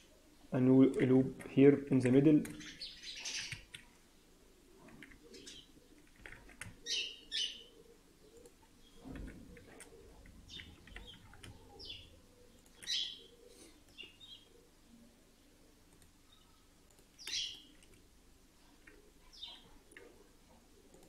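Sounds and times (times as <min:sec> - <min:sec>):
faint bird chirps: 0:16.2 - 0:17.8.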